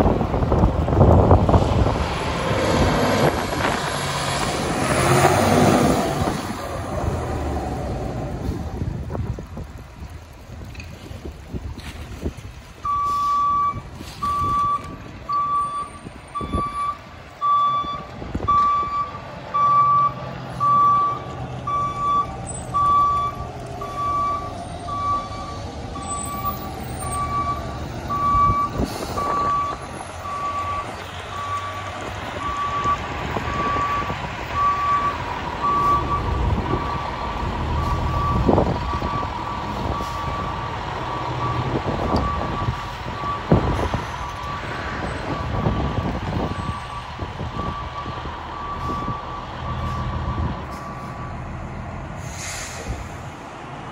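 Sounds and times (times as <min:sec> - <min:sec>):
reversing alarm beeping: 0:12.8 - 0:37.1, 0:45.3 - 0:51.0.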